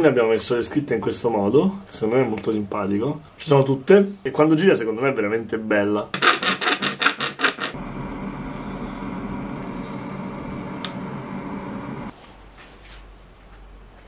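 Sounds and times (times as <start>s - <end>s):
blowtorch flame hissing: 7.6s - 12.1s.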